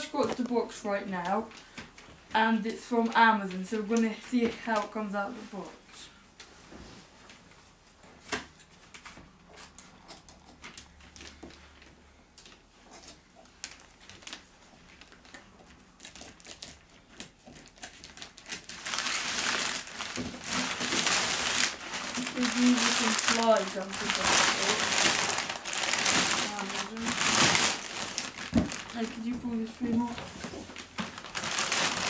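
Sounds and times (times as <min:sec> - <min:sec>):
packaging crinkling and rustling: 0:08.8 - 0:32.0.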